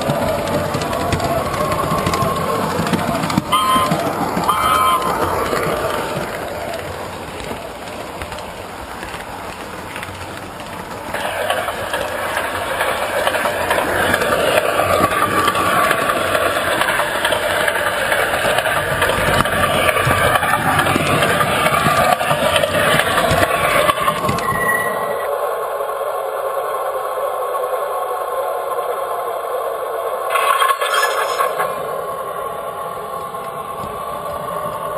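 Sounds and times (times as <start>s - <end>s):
wheels rattling on metal rails: 0.0s - 25.4s, 30.3s - 34.9s
model train motor whirring: 30.3s - 32.0s.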